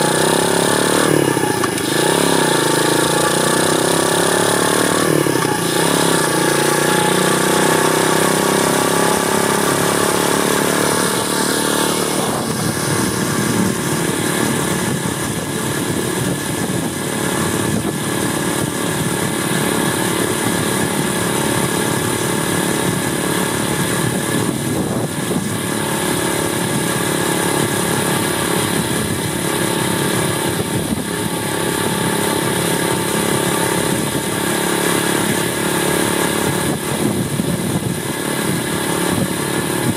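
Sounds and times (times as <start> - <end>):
motorbike engine running: 0.0 - 39.9
wind rushing: 11.8 - 18.7.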